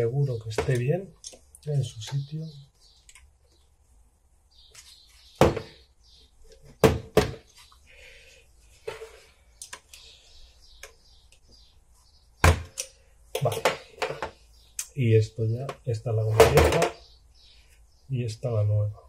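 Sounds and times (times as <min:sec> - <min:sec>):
metal parts knocking on workbench: 0:16.4 - 0:17.0.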